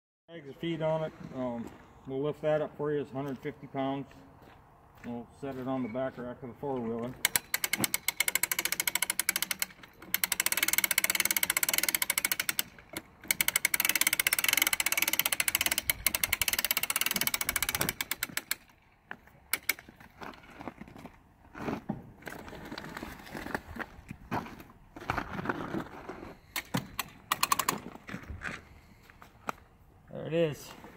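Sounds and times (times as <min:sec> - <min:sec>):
hand winch ratchet clicking: 0:07.1 - 0:18.8, 0:19.5 - 0:20.4, 0:26.4 - 0:28.0.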